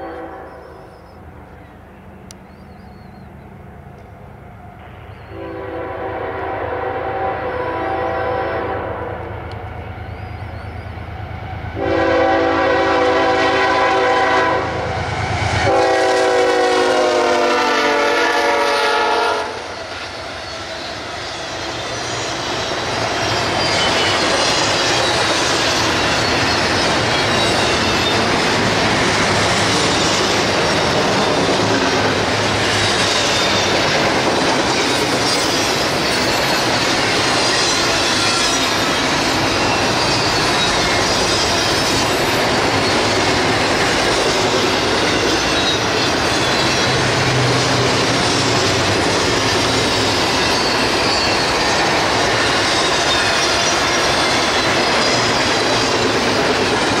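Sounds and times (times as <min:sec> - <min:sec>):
train horn blasts: 0:00.0 - 0:00.9, 0:05.3 - 0:09.3, 0:11.7 - 0:19.8
diesel locomotive rumbling: 0:00.0 - 0:57.0
steel wheels rushing on rails: 0:00.0 - 0:57.0.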